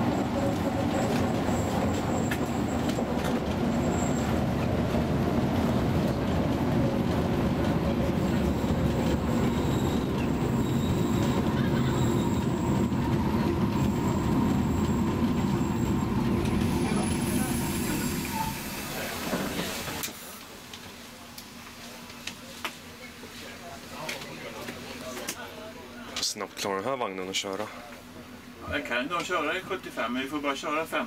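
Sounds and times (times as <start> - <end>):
electric railcar rumbling: 0.0 - 22.3
faint high wheel squeal: 0.1 - 3.0, 3.6 - 4.4, 8.2 - 19.6.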